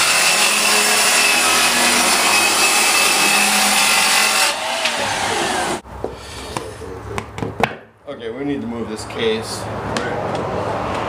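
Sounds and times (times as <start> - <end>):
circular saw cutting board: 0.0 - 5.8.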